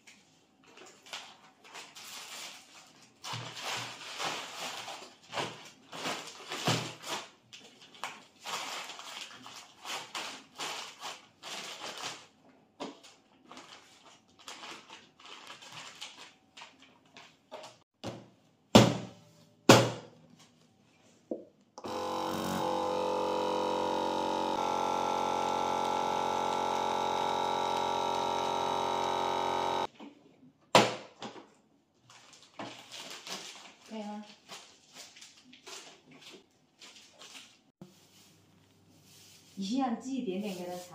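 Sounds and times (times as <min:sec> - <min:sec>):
plastic bag rustling: 0:00.6 - 0:12.4, 0:13.0 - 0:17.5, 0:32.1 - 0:39.8
vacuum pump humming: 0:21.8 - 0:29.9.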